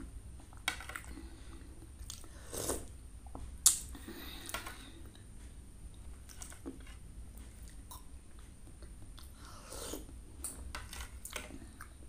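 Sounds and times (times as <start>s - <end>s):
slurping from spoon: 2.3s - 2.9s.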